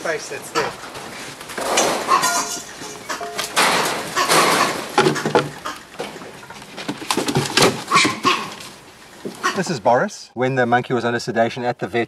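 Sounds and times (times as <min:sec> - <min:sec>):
monkey screaming: 0:02.0 - 0:03.4.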